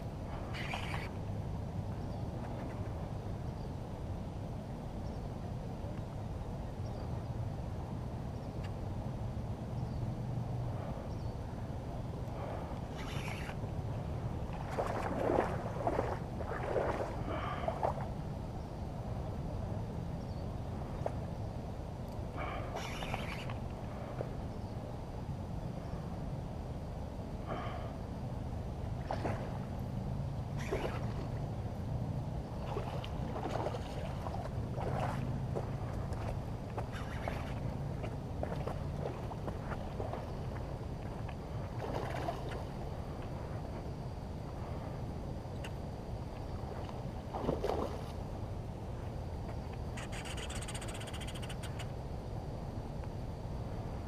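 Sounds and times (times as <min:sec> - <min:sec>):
river water lapping and splashing: 0:00.0 - 0:03.4, 0:10.3 - 0:21.4, 0:22.0 - 0:24.5, 0:27.4 - 0:51.8
low steady rumble: 0:00.0 - 0:54.0.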